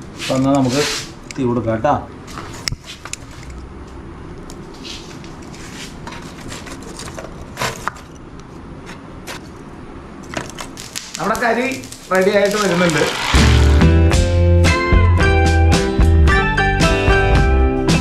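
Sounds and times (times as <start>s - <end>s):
low background noise: 0.0s - 13.4s
fire crackling: 10.5s - 14.2s.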